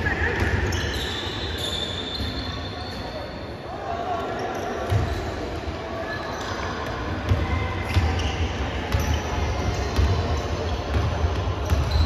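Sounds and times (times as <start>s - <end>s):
basketball bouncing: 10.9s - 12.0s.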